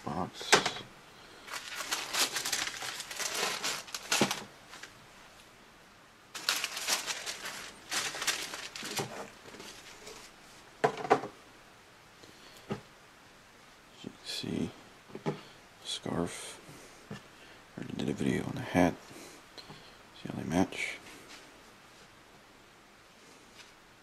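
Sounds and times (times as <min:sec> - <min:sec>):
tissue paper crinkling: 0:01.4 - 0:05.0, 0:06.3 - 0:10.6.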